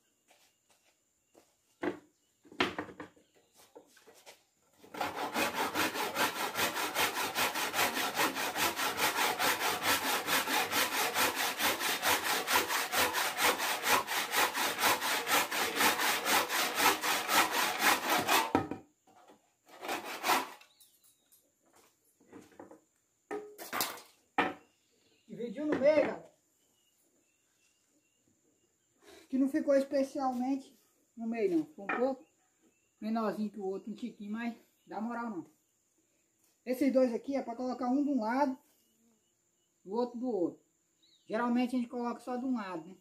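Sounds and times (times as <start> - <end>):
hand saw cutting wood: 4.7 - 18.8, 19.7 - 20.7.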